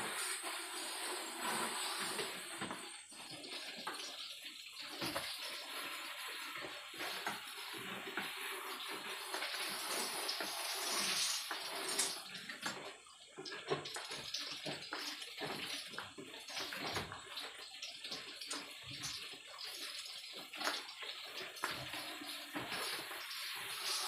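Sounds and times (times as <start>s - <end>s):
sprayer hissing: 0.0s - 2.7s.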